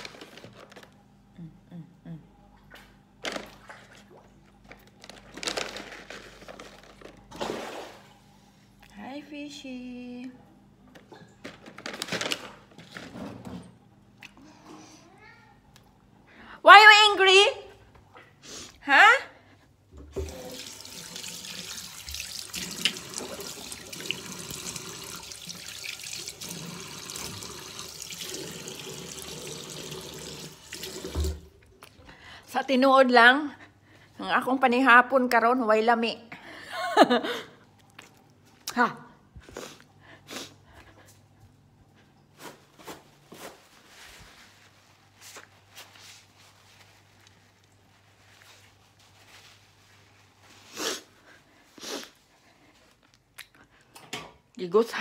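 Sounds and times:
tap water running into sink: 20.0 - 31.6
person sniffing: 39.5 - 40.6, 50.6 - 52.2
person blowing nose: 50.6 - 52.2.

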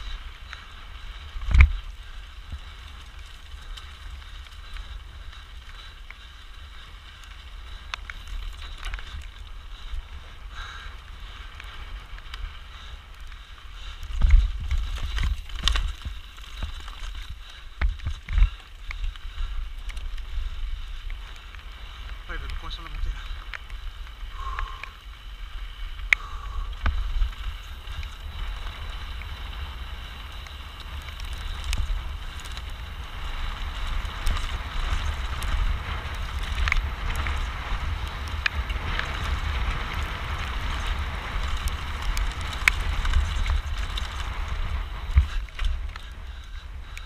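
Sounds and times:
wind rumbling on microphone: 0.0 - 47.0
stones knocking on bike: 1.4 - 1.9, 14.1 - 19.1.

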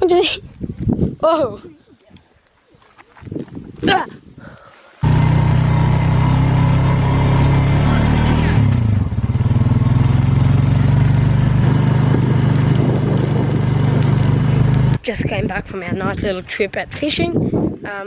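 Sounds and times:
quad bike engine running: 5.0 - 15.0.

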